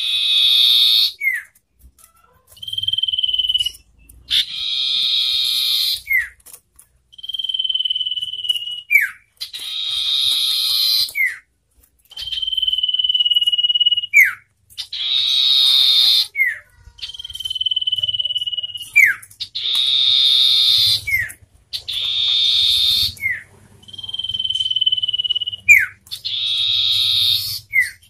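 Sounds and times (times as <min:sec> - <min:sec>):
bird high whistles: 0:12.2 - 0:28.0.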